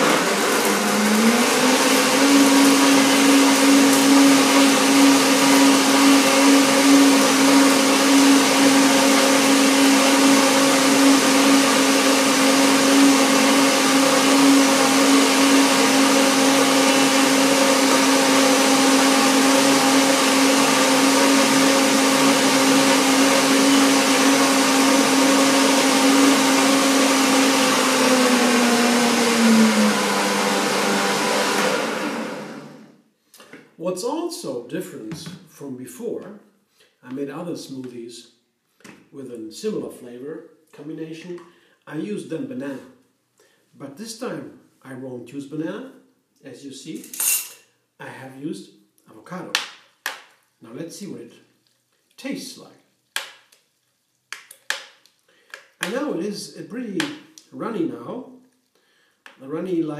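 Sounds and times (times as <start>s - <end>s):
blender running: 0.0s - 33.0s.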